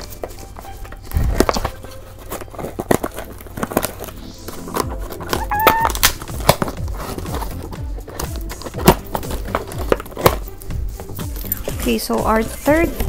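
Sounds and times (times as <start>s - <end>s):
package being opened by hand: 0.0s - 11.8s
short squeak: 5.4s - 5.9s.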